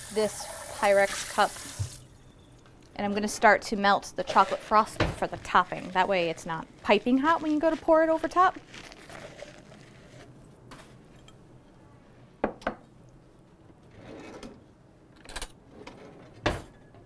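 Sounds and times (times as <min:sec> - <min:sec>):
drawer sliding open: 0:13.9 - 0:14.6.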